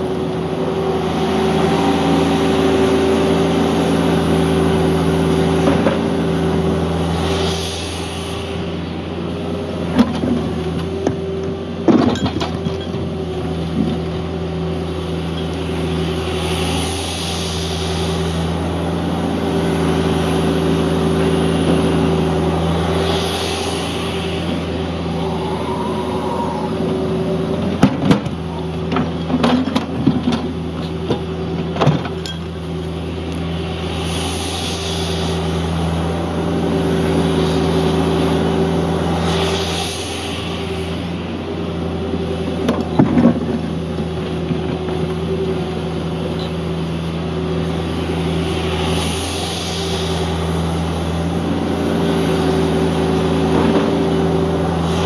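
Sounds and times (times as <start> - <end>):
excavator diesel engine running: 0.0 - 55.0
hydraulic hiss: 39.0 - 41.6.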